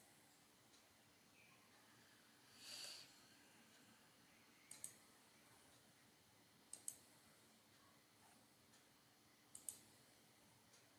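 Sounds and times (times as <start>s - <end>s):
computer mouse clicks: 4.6s - 5.1s, 6.7s - 7.1s, 9.5s - 10.0s.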